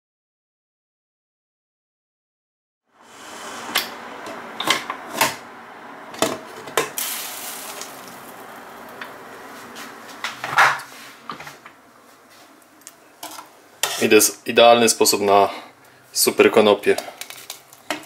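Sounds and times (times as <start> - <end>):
steam hissing: 3.0 - 4.2, 7.0 - 10.0.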